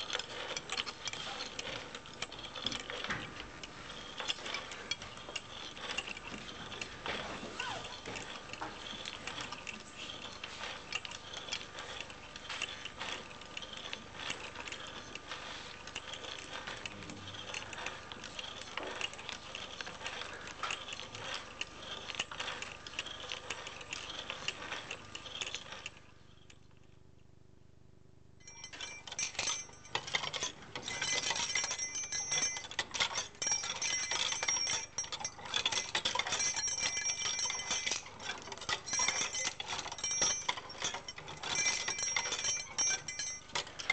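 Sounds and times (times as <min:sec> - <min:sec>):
metal parts jingling: 0:00.0 - 0:26.0, 0:28.4 - 0:43.9
wooden wheels rattling and clicking: 0:00.0 - 0:26.1, 0:28.4 - 0:43.9
bell-like ringing: 0:28.4 - 0:32.8.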